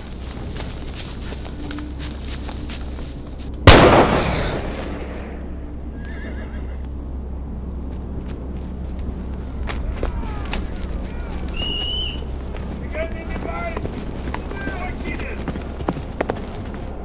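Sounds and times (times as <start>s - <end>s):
steady low rumble: 0.0s - 17.0s
loud bang ringing out: 3.7s - 5.6s.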